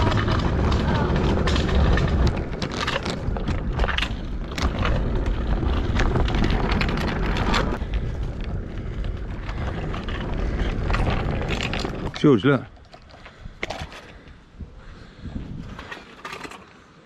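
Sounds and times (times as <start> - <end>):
clicks and rattles from bumps: 0.0 - 8.0
wind buffeting microphone: 0.0 - 16.0
scooter wheels rolling on tarmac: 0.0 - 17.0.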